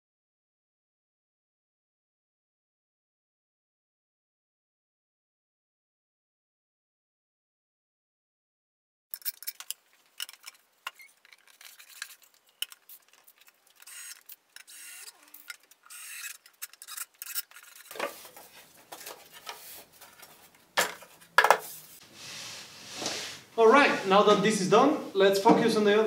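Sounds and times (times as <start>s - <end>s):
wooden panels clicking and rubbing: 9.1s - 21.9s.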